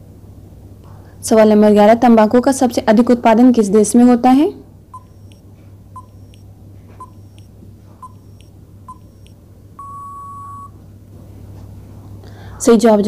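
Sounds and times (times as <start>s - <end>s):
countdown timer beeping: 5.0s - 5.4s, 6.0s - 6.4s, 7.0s - 10.7s.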